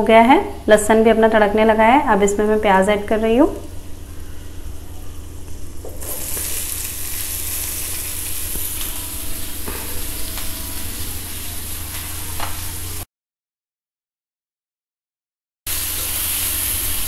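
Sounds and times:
onions sizzling in butter: 3.7s - 13.0s, 15.7s - 17.0s.

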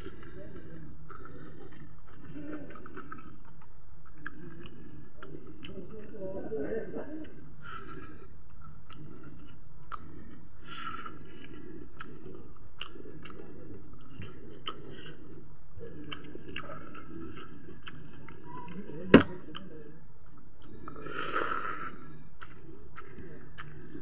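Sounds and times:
person chewing food: 0.0s - 6.2s, 7.2s - 24.0s
wet mouth clicks and smacks: 22.4s - 24.0s.

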